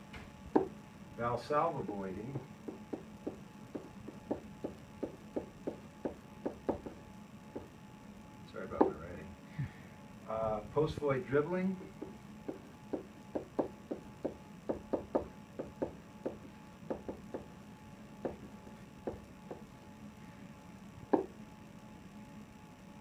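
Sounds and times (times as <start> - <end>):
pen tapping on whiteboard: 0.5 - 0.8, 2.7 - 7.7, 12.0 - 17.5, 18.2 - 19.7, 21.1 - 21.3.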